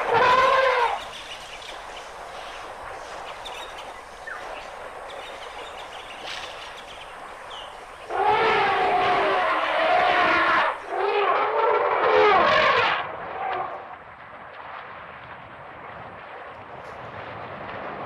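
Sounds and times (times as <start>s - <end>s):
elephant calls: 0.0s - 1.5s, 7.5s - 13.0s
outdoor hiss: 0.0s - 11.0s
faint bird chirps: 0.9s - 8.1s.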